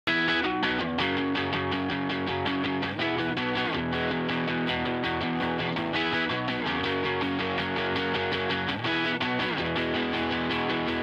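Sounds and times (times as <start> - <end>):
guitar background music: 0.1 - 11.0.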